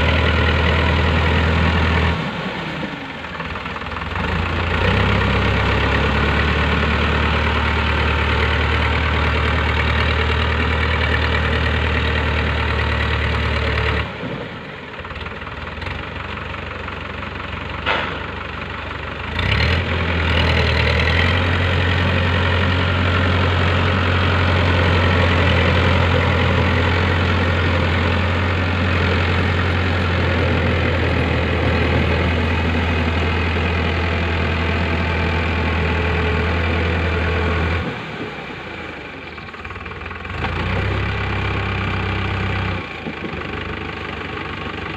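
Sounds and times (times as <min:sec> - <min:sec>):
tractor diesel engine droning: 0:00.0 - 0:44.9.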